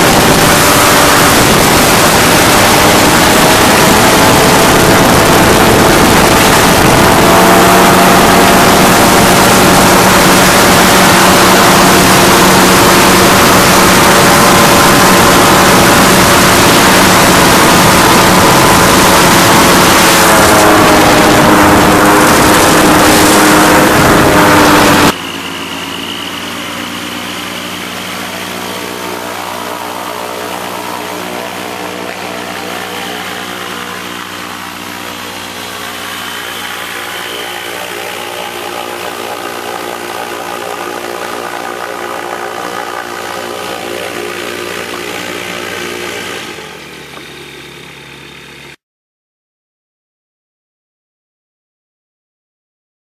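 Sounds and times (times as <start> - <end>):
rushing air: 0.0 - 40.6
powered parachute engine: 0.0 - 48.8.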